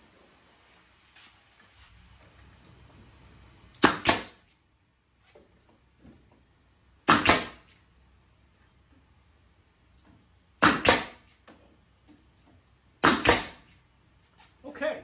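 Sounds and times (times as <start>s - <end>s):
nail gun firing: 3.8s - 4.4s, 7.0s - 7.7s, 10.6s - 11.4s, 13.0s - 13.7s.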